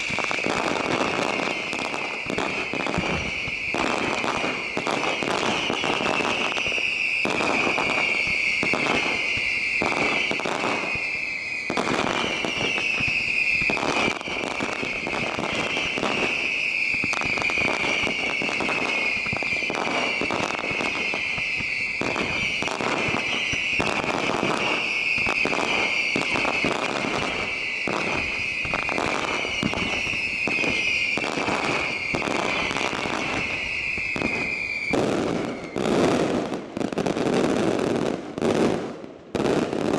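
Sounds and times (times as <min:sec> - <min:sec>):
shrill whistles gliding downward: 0:00.0 - 0:36.2
fireworks bangs and crackle: 0:00.0 - 0:39.9.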